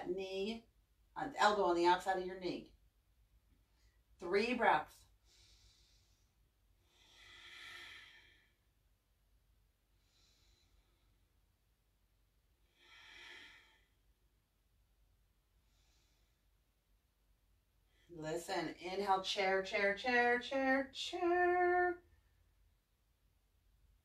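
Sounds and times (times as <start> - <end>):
woman breathing slowly: 5.1 - 8.8, 9.9 - 11.4, 12.6 - 14.2, 15.6 - 16.6.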